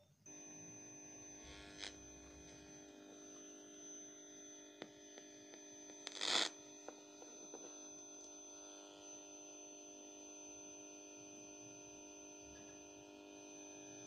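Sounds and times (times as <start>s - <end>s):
radio speaker hum with whine: 0.0s - 9.5s.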